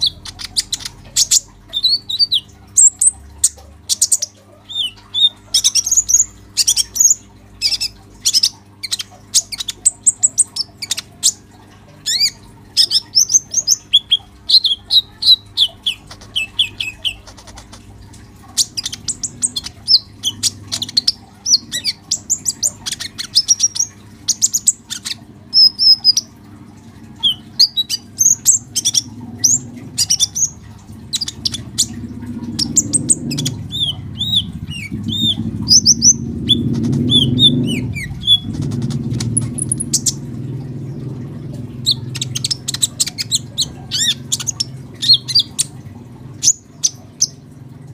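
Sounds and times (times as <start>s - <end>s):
bird chirping and trilling: 0.0s - 26.4s, 27.0s - 47.6s
steady low hum: 0.0s - 47.9s
low rumble: 28.6s - 46.4s.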